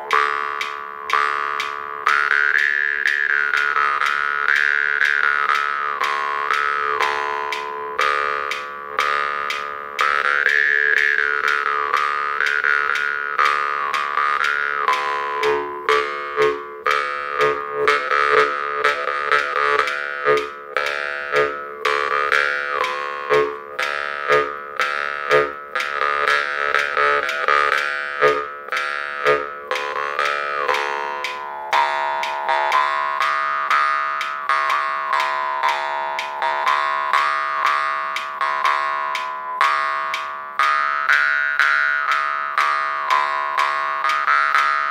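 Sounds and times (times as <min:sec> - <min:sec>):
jaw harp twanging: 0:00.0 - 0:44.9
metronome ticking: 0:00.0 - 0:44.9.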